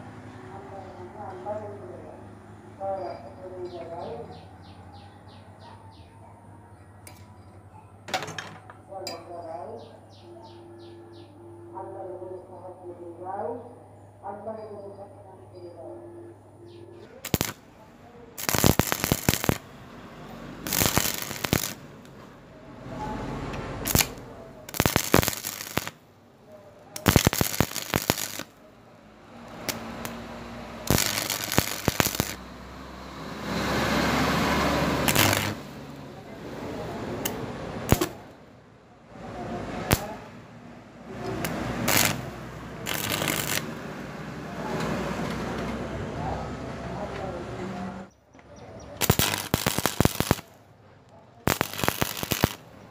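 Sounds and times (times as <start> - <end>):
welding arc crackling: 17.2 - 17.8, 18.4 - 19.8, 20.5 - 22.2, 23.8 - 26.1, 27.0 - 28.6, 29.4 - 32.7, 33.4 - 36.1, 37.0 - 38.4, 39.6 - 40.3, 41.1 - 44.1, 49.0 - 50.6, 51.4 - 52.9.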